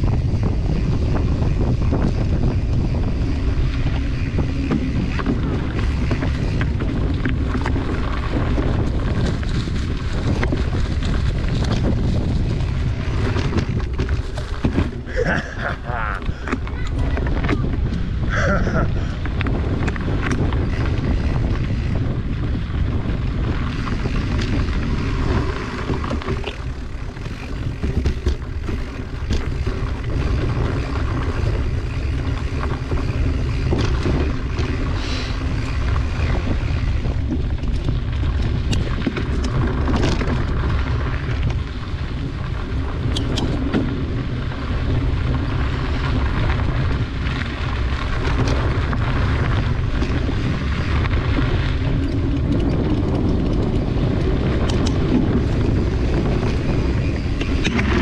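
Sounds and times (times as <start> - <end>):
bike clicks and rattles: 0.0 - 58.0
wind buffeting microphone: 0.0 - 58.0
tyres on dirt and leaves: 3.4 - 17.7.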